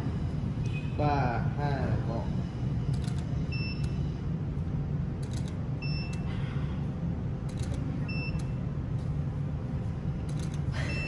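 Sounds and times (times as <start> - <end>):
steady low hum: 0.0 - 11.0
camera beep: 2.9 - 4.0, 5.3 - 6.3, 7.5 - 8.6.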